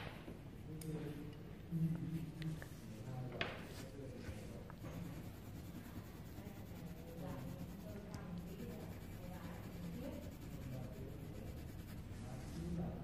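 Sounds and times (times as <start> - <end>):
pencil scratching on paper: 4.7 - 12.7.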